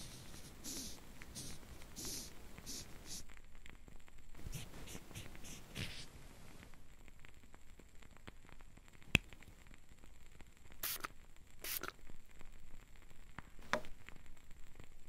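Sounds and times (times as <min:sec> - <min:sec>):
spray bottle hissing sprays: 0:00.0 - 0:03.2, 0:04.5 - 0:06.1, 0:10.8 - 0:12.0
faint ticks and crackles: 0:00.0 - 0:15.0.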